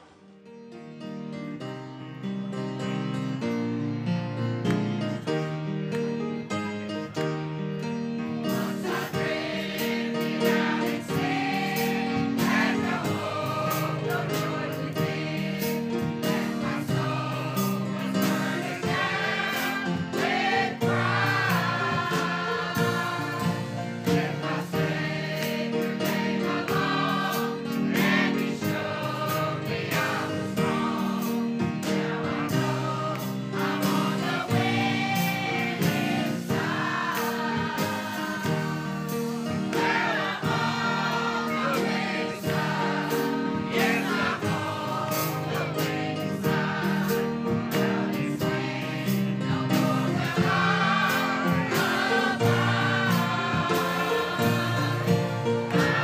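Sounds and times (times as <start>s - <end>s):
piano: 0.0s - 56.0s
choir singing gospel: 3.3s - 56.0s.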